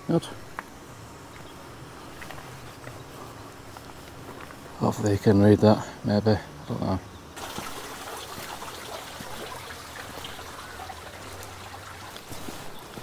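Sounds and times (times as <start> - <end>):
water trickling: 7.4 - 13.0.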